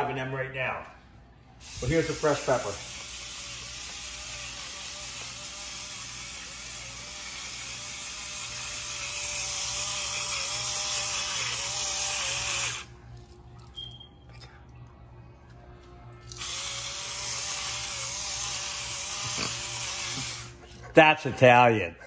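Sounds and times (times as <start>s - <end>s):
electric pepper grinder motor: 1.6s - 12.9s, 16.3s - 20.6s.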